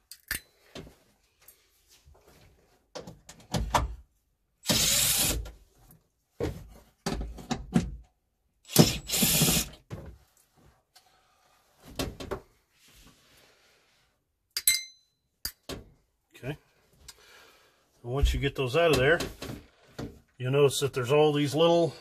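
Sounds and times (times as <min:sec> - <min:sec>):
tools and plastic clattering: 0:06.4 - 0:08.1.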